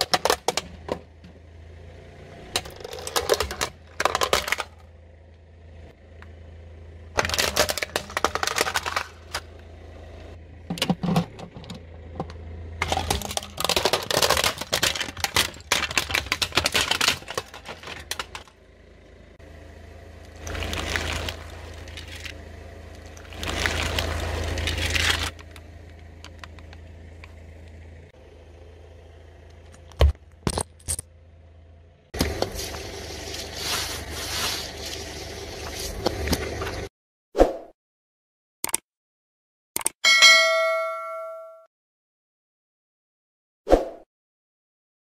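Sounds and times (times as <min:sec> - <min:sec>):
plastic cracking under tyre: 0:00.0 - 0:00.7, 0:02.6 - 0:04.8, 0:07.2 - 0:09.5, 0:12.8 - 0:18.6, 0:20.3 - 0:25.6
plastic bottles crushed: 0:02.6 - 0:04.8, 0:07.2 - 0:09.4, 0:12.8 - 0:18.5, 0:20.4 - 0:22.4, 0:23.2 - 0:25.4.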